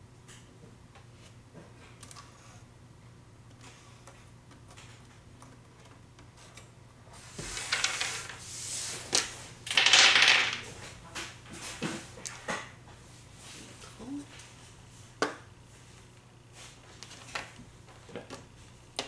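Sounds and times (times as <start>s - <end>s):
dice clattering on table: 7.4s - 8.4s, 9.1s - 10.8s
dice rattling in hand: 9.7s - 10.7s.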